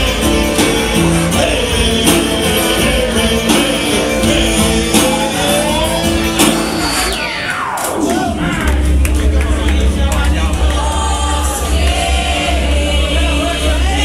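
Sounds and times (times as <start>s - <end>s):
man singing: 0.0s - 7.2s
acoustic guitar: 0.0s - 7.5s
percussion hits: 0.0s - 13.8s.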